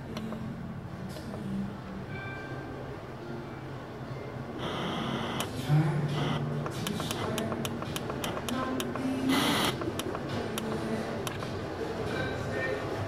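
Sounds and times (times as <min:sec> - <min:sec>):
radio static: 0:04.6 - 0:10.8
sharp tuning clicks: 0:04.6 - 0:11.5.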